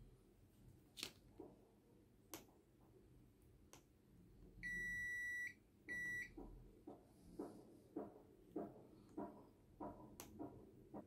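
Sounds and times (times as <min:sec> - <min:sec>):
multimeter high beeps: 0:04.6 - 0:06.3.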